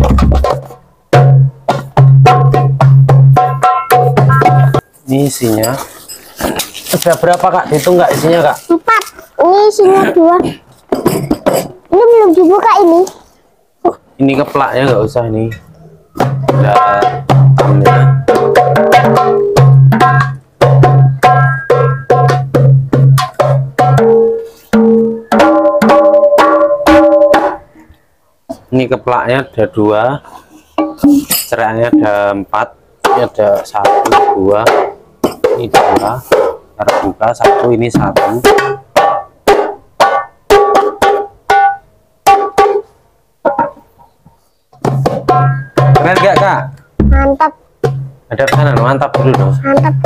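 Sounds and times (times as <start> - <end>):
frame drum slaps by hand: 0.0 - 4.8
hand drum percussion: 0.0 - 4.9, 16.2 - 27.7, 33.0 - 42.9, 44.8 - 50.0.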